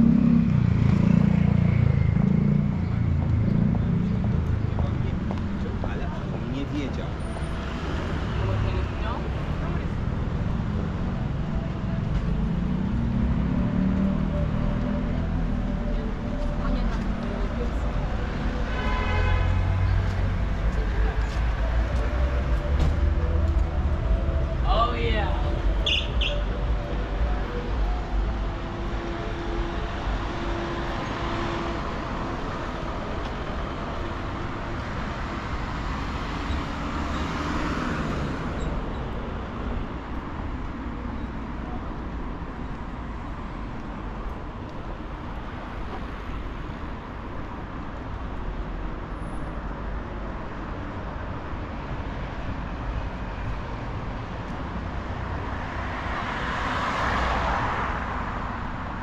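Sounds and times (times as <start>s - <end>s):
vehicle passing: 0.0s - 18.6s
city street traffic: 0.0s - 59.0s.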